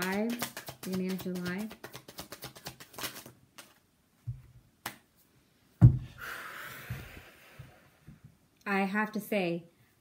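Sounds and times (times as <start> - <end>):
cards tapping down: 0.0 - 3.8
cards being shuffled: 0.0 - 3.9
loud thump: 5.8 - 6.2.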